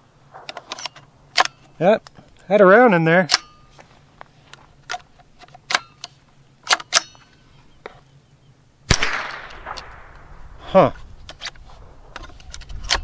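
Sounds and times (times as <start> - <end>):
rifle loading clicks: 0.4 - 2.2, 3.2 - 3.8, 4.5 - 7.4, 8.9 - 10.3, 11.2 - 13.0
rifle shot with echo: 8.9 - 10.6.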